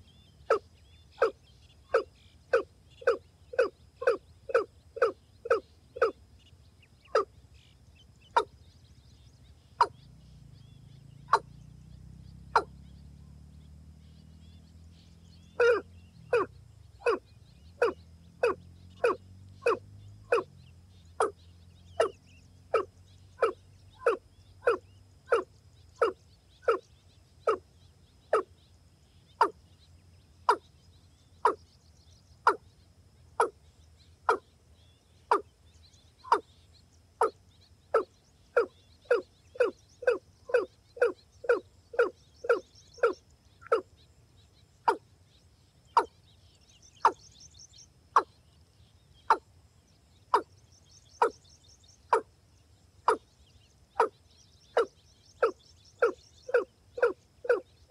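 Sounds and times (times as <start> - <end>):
rail bird calling: 0.0 - 6.2, 8.3 - 8.6, 9.6 - 10.2, 11.2 - 11.6, 12.4 - 12.9, 15.4 - 28.6, 29.2 - 29.8, 30.4 - 30.8, 31.4 - 31.7, 32.4 - 34.5, 35.1 - 44.0, 44.7 - 45.1, 45.9 - 48.5, 50.3 - 52.3, 53.0 - 57.9.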